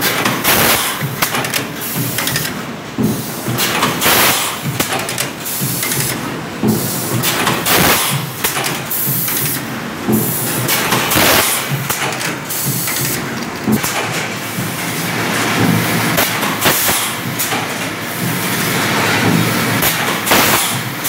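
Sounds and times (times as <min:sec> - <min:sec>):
pneumatic air bursts: 0:00.0 - 0:02.5, 0:03.2 - 0:06.1, 0:06.8 - 0:09.6, 0:10.2 - 0:13.2, 0:16.2 - 0:18.2, 0:19.8 - 0:21.0
machine clatter: 0:00.0 - 0:21.0.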